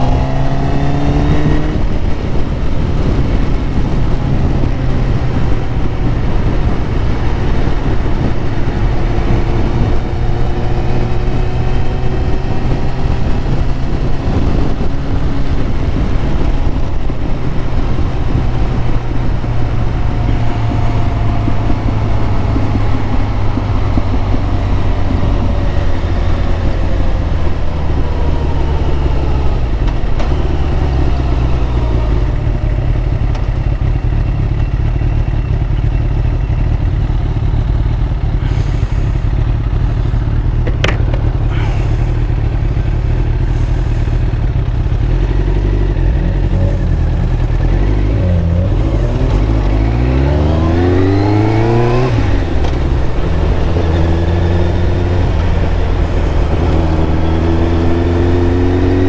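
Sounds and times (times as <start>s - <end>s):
motorcycle engine accelerating: 0.0s - 59.0s.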